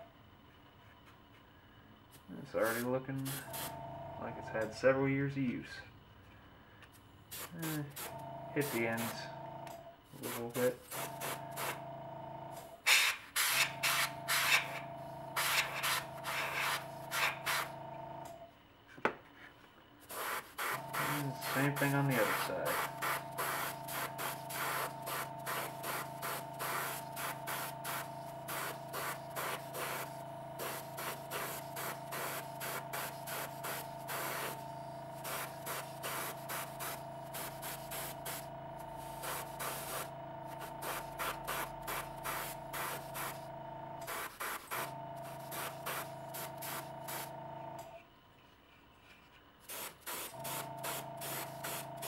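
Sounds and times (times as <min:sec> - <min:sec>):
steady hum: 0:00.0 - 0:52.0
airbrush spraying hiss: 0:02.6 - 0:03.7, 0:07.3 - 0:09.2, 0:10.2 - 0:11.8, 0:20.1 - 0:38.5, 0:39.1 - 0:43.4, 0:44.0 - 0:47.3, 0:49.7 - 0:52.0.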